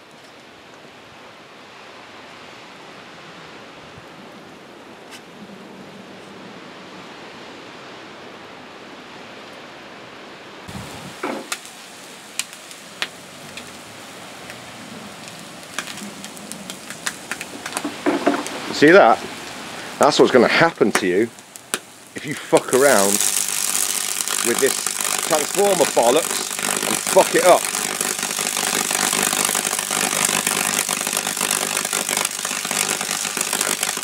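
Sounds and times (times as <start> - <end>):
steady hiss: 10.7 - 34.0
bacon crackling and popping: 11.1 - 19.9, 20.5 - 34.0
thump: 11.2 - 11.5.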